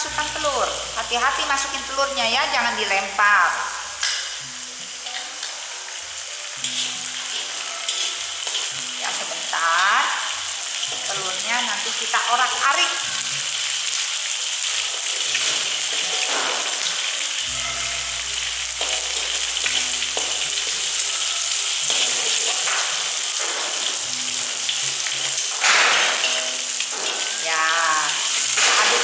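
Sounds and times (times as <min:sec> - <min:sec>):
egg sizzling in oil: 0:00.2 - 0:29.0
metal spatula scraping wok: 0:06.5 - 0:09.6, 0:14.6 - 0:29.0.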